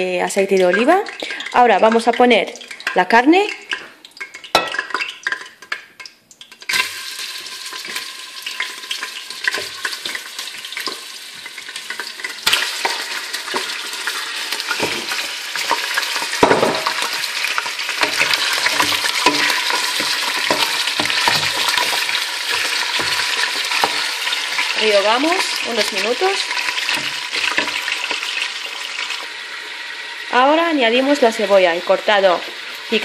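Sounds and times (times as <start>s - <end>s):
meat sizzling in hot oil: 0.0s - 33.0s
meat pieces knocking in pot: 7.4s - 28.6s.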